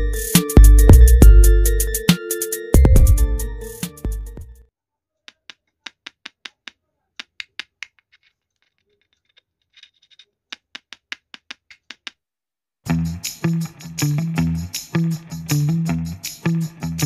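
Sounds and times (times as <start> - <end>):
fingers tapping microphone: 5.3 - 8.8.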